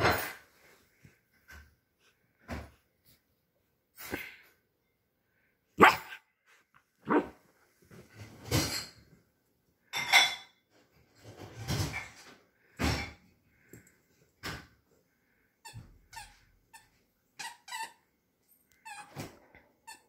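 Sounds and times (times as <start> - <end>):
puppy barking: 5.8 - 6.2, 7.0 - 7.4.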